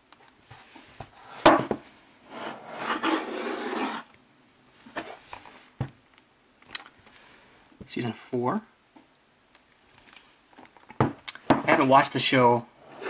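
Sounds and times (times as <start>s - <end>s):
cardboard rubbing against cardboard: 2.3s - 4.1s.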